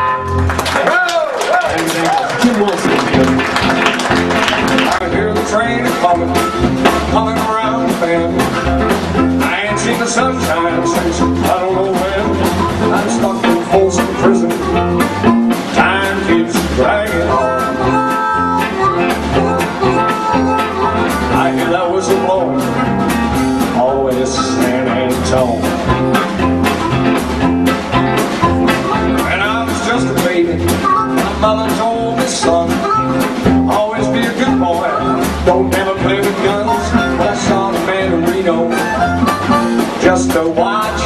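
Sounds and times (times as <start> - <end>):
drums: 0.0 - 41.0
upright bass: 0.0 - 41.0
electric guitar: 2.0 - 41.0.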